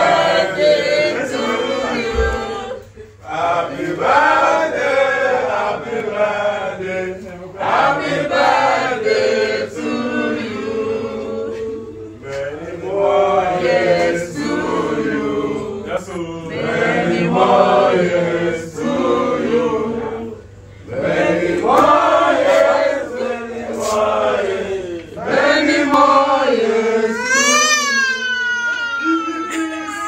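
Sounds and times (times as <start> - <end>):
people singing together: 0.0 - 30.0
young child crying: 27.0 - 30.0.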